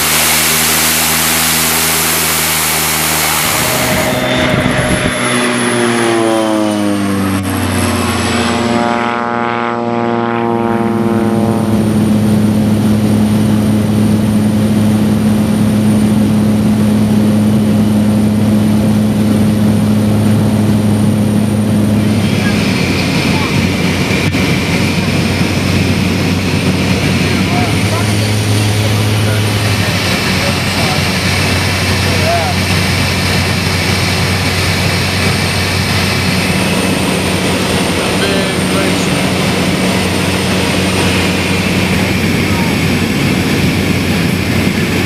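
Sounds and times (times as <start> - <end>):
rushing noise: 0.0 - 8.8, 21.1 - 45.0
propeller engine: 0.0 - 45.0.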